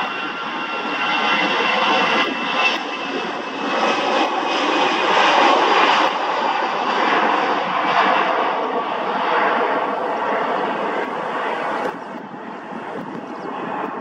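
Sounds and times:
faint high jet whine: 0.0s - 14.0s
jet engine roar: 0.0s - 14.0s.

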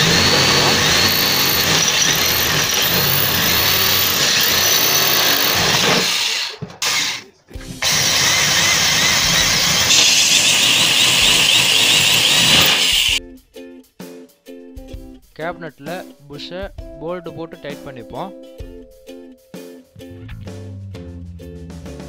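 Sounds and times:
electric drill running: 0.0s - 7.2s, 7.8s - 13.2s.

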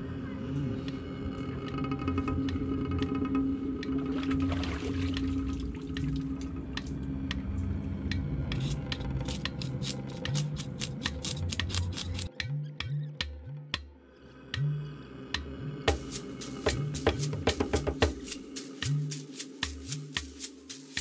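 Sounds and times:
knife scraping fish scales: 8.6s - 12.3s.

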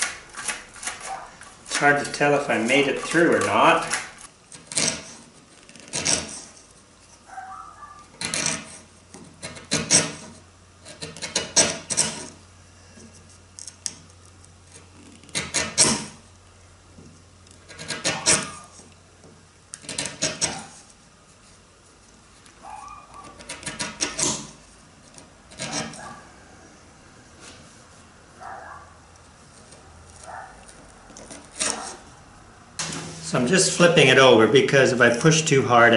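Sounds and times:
wood chisel scraping wood: 0.0s - 7.3s, 8.1s - 16.2s, 17.5s - 19.0s, 19.7s - 21.6s, 23.1s - 26.2s, 29.4s - 32.2s.

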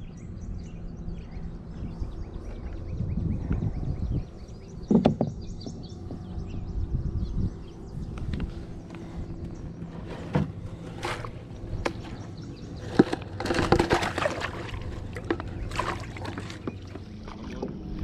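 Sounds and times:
knocks against kayak hull: 4.9s - 5.4s
paddle sloshing in water: 9.9s - 18.0s.

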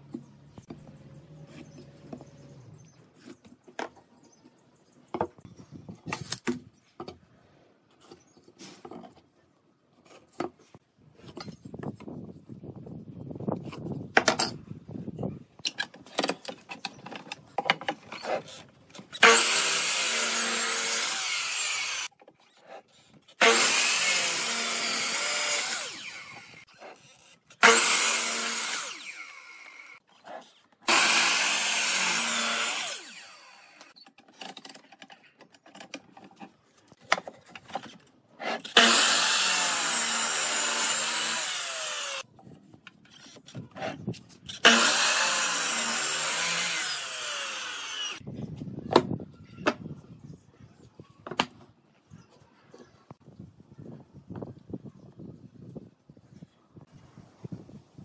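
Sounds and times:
miter saw cutting wood: 19.2s - 22.1s, 23.4s - 30.0s, 30.9s - 34.0s, 38.6s - 42.2s, 44.6s - 48.2s.

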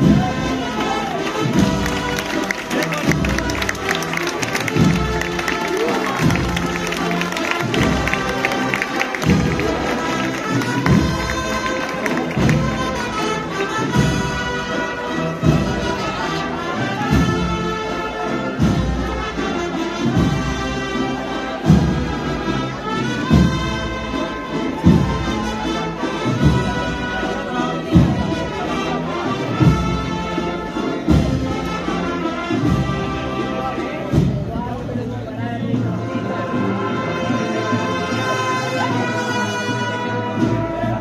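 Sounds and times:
brass band playing slow march: 0.0s - 41.0s.

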